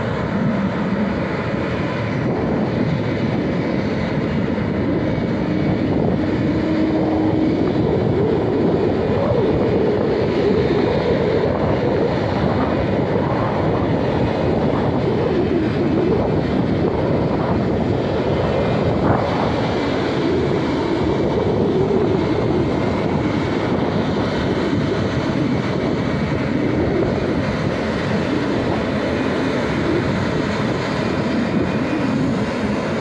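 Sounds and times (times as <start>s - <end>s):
jet engines whooshing and rumbling: 0.0s - 33.0s.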